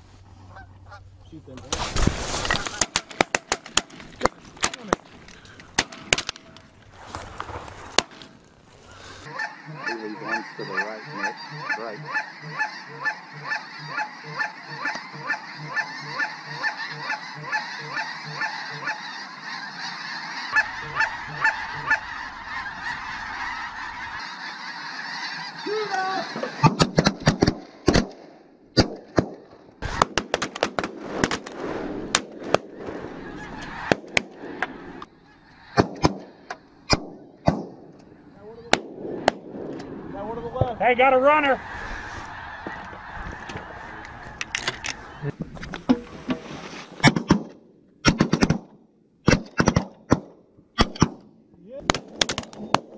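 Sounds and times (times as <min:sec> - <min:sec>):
geese honking: 0:00.4 - 0:01.4, 0:08.7 - 0:27.2, 0:32.6 - 0:39.4, 0:40.1 - 0:45.4
shotgun blasts: 0:36.9 - 0:37.9.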